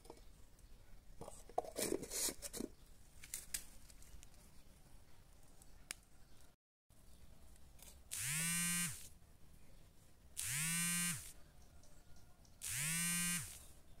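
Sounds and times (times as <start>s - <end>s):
small motor buzzing: 8.1s - 9.1s, 10.4s - 11.4s, 12.6s - 13.7s.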